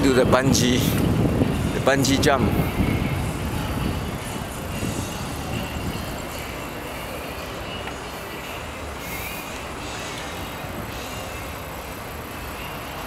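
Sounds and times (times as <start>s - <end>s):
wind noise: 0.0s - 6.6s
bike tyres rolling on pavement: 0.0s - 13.0s.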